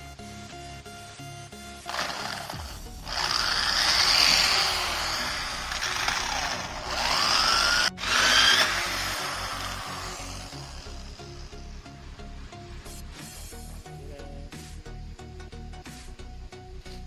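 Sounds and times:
electric drill cutting wood: 1.8s - 11.7s.

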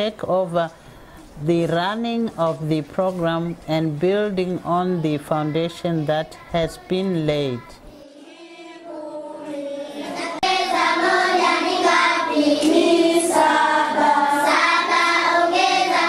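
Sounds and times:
children singing in unison: 5.4s - 16.0s.

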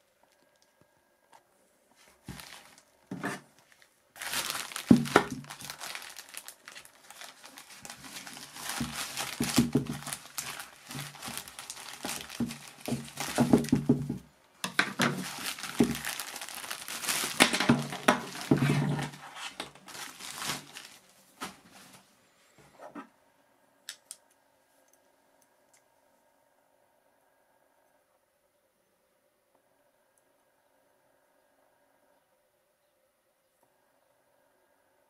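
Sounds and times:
plastic mailer crinkling and tearing: 2.2s - 22.0s.

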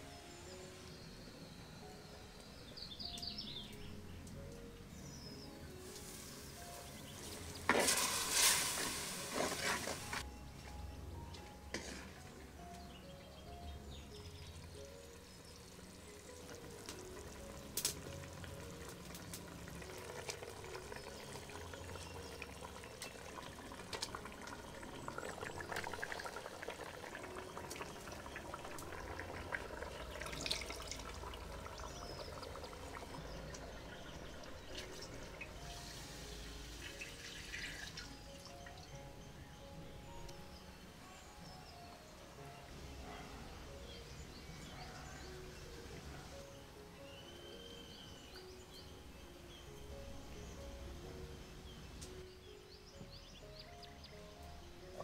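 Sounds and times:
soft background music: 0.0s - 55.0s
curry stirred in clay pot: 11.7s - 12.2s
liquid pouring into pot: 16.6s - 35.6s, 36.8s - 38.1s.

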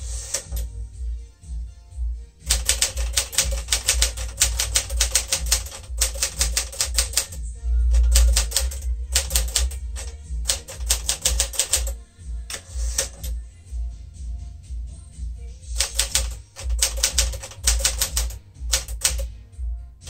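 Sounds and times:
low background music: 0.0s - 20.0s
typewriter carriage return: 2.5s - 7.4s, 8.0s - 13.4s, 15.8s - 19.3s
typewriter keys striking: 2.5s - 7.4s, 8.0s - 13.4s, 15.8s - 19.3s.

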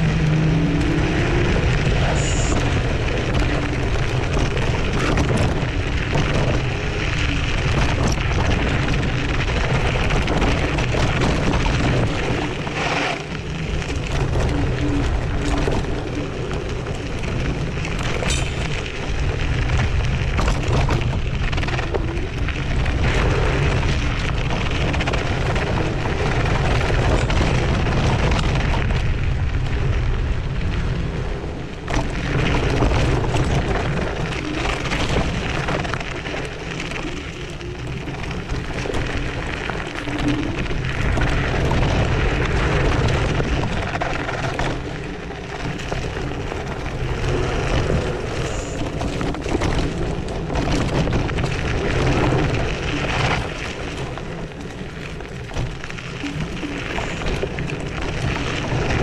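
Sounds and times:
stones knocking and rattling: 0.0s - 29.5s
scooter tyres rumbling on gravel: 0.0s - 59.0s.

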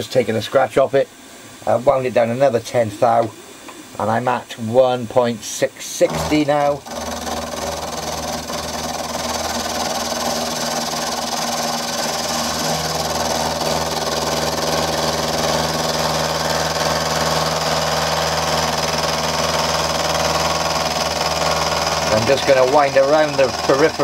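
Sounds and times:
end mill cutting hiss: 0.1s - 24.0s
milling machine motor hum: 6.0s - 24.0s.

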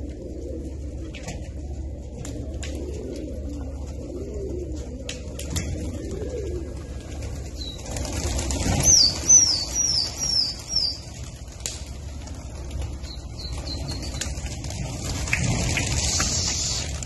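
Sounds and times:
pigeons cooing: 0.0s - 17.0s
flapping wings: 1.0s - 17.0s
bird chirping high: 8.8s - 11.1s.

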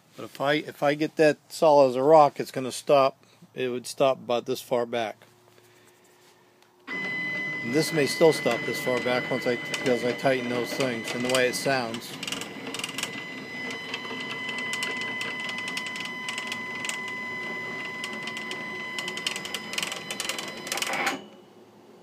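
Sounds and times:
cnc gantry motor whine: 6.9s - 21.6s.

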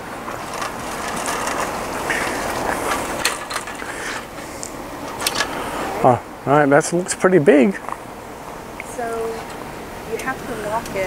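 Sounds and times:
metal frame joints rattling: 0.4s - 3.8s.

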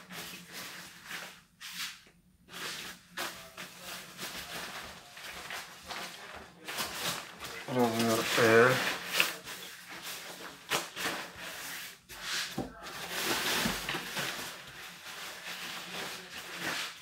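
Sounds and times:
nylon fabric rustling: 4.0s - 17.0s.

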